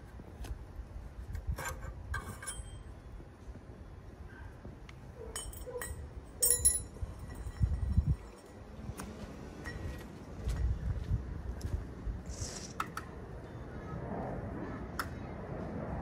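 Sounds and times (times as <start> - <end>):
metal clinks and scrapes: 1.6 - 3.0, 5.2 - 8.6.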